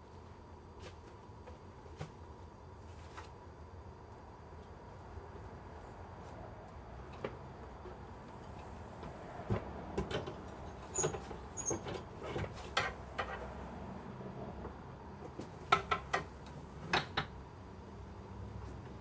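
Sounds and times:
bellows knocking and clunking: 0:14.6 - 0:17.3.

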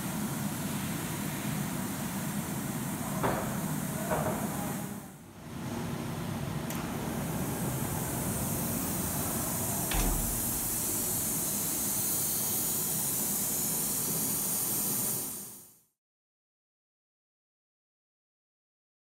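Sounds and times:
machine low rumble: 0:06.7 - 0:11.9
coolant spray hissing: 0:07.0 - 0:15.7
machine thump: 0:09.8 - 0:11.9.

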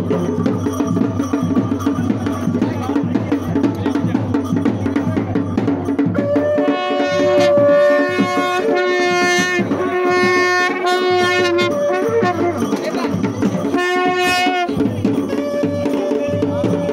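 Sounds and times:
drums beating: 0:00.0 - 0:16.9
wind instrument long notes: 0:06.1 - 0:16.9.

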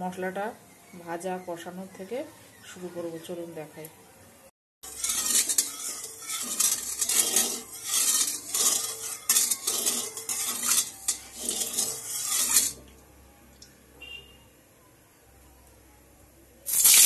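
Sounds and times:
metal spatula scraping pan: 0:04.8 - 0:12.9.

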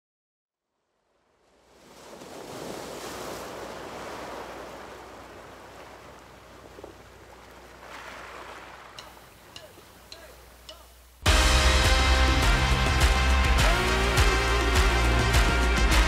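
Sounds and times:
rushing ocean surf noise: 0:01.6 - 0:11.7.

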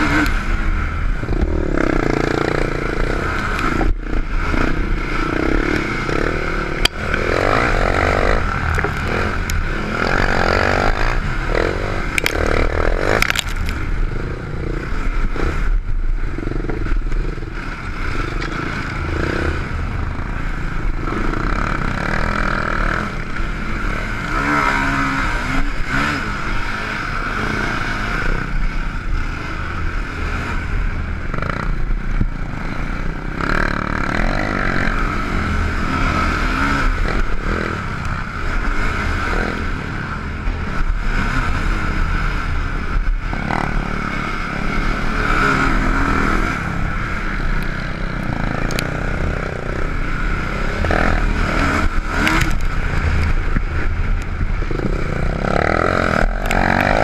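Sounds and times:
quad engine revving: 0:00.0 - 0:00.6, 0:01.2 - 0:15.7, 0:16.4 - 0:28.5, 0:32.6 - 0:57.0
knocks and clatter over bumps: 0:06.8 - 0:09.6.

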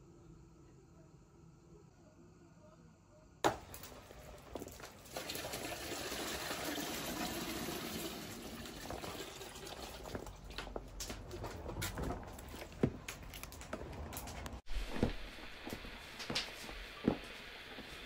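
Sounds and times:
faint low hum: 0:00.0 - 0:04.9
water running: 0:03.5 - 0:11.1.

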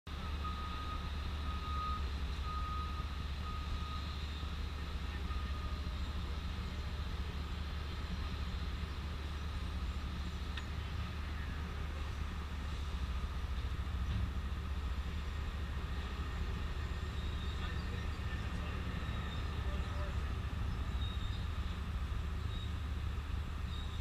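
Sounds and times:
reversing alarm beeping: 0:00.1 - 0:05.9
heavy vehicle engine idling: 0:00.1 - 0:24.0.

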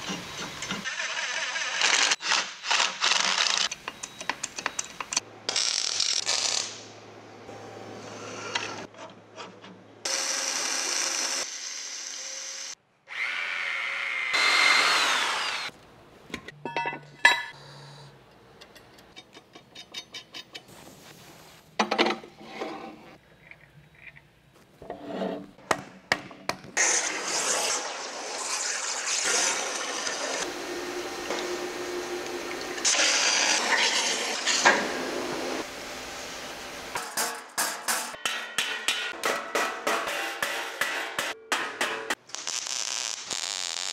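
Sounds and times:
power tool running: 0:14.3 - 0:15.7.

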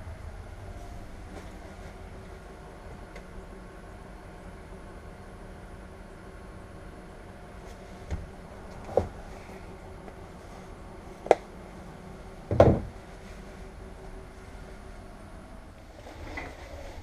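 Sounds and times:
diesel engine idling: 0:00.0 - 0:17.0
knocks and clunks in cab: 0:08.0 - 0:09.3, 0:12.4 - 0:13.1.

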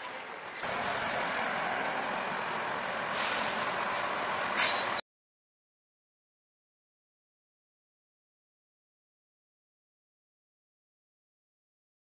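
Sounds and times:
bus idling: 0:00.0 - 0:05.0
street noise: 0:00.0 - 0:05.0
air-brake hiss: 0:03.1 - 0:05.0.

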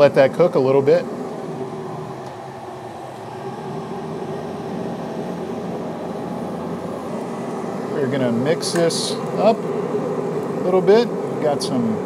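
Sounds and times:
grill fan whirring hum: 0:00.0 - 0:12.0.

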